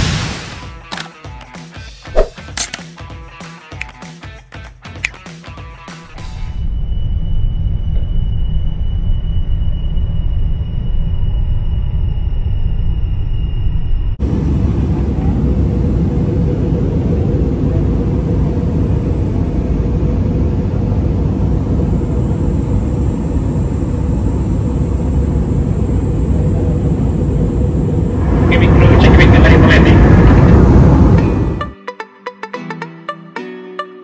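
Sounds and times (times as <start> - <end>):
vehicle rumble: 6.6 - 31.7.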